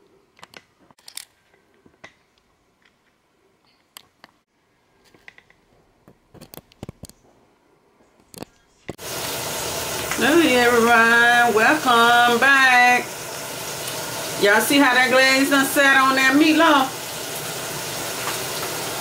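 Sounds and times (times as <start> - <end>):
loud steady hiss: 9.0 - 19.0.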